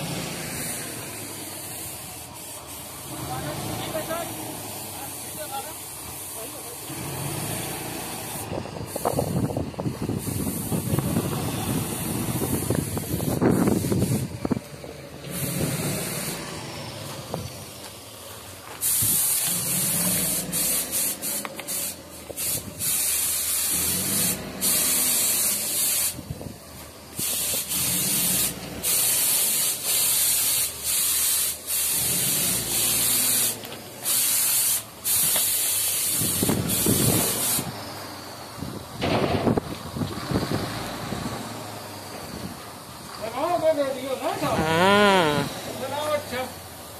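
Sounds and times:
paint spray gun hissing: 0:00.5 - 0:03.2, 0:03.9 - 0:06.9, 0:08.0 - 0:16.5, 0:18.6 - 0:38.6.

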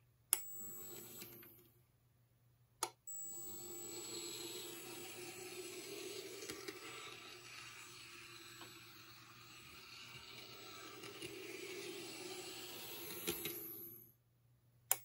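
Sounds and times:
small electric motor whirring: 0:03.2 - 0:14.1.

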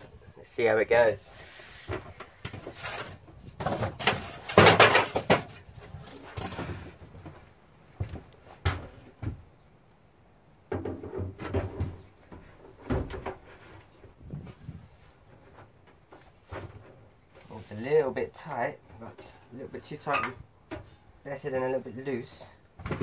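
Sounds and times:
metal unit clattering and knocking: 0:03.7 - 0:05.6.

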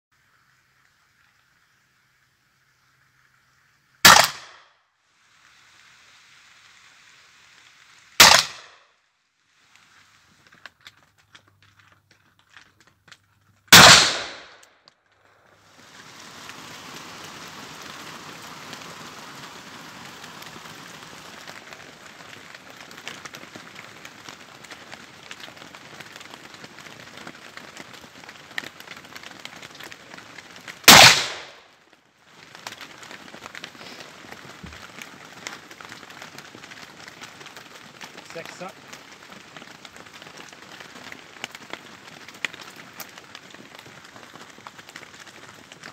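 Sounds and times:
steady rushing hiss: 0:04.9 - 0:08.3, 0:09.1 - 0:11.4, 0:15.2 - 0:28.8, 0:29.9 - 0:41.3.

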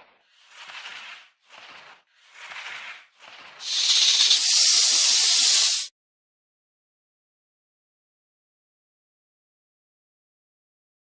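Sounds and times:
snake hissing: 0:03.6 - 0:05.9.

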